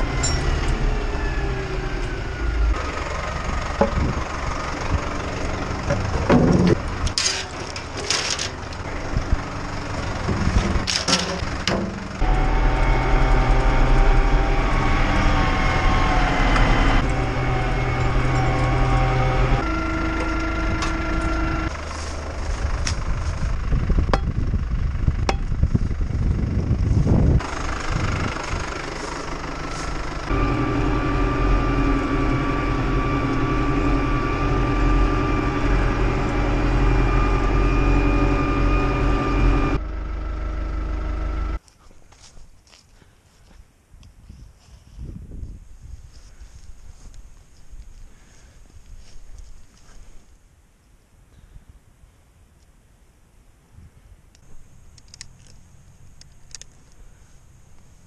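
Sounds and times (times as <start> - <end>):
tractor diesel engine running: 0.0 - 43.6, 45.7 - 50.3
sharp clicks: 54.3 - 57.0.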